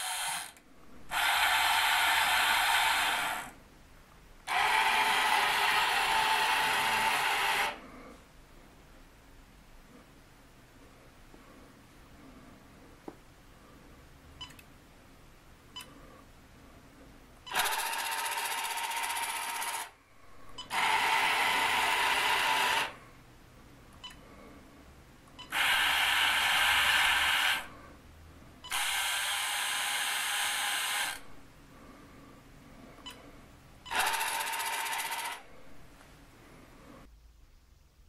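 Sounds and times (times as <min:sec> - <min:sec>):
toy excavator motor whirring: 0:00.0 - 0:03.6, 0:04.5 - 0:07.8, 0:17.5 - 0:20.0, 0:20.6 - 0:23.0, 0:25.5 - 0:27.8, 0:28.7 - 0:31.3, 0:33.9 - 0:35.5.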